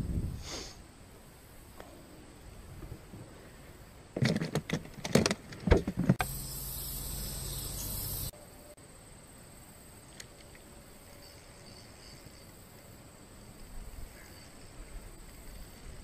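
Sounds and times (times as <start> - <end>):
high-pitched insect drone: 6.2 - 8.8, 10.7 - 16.0.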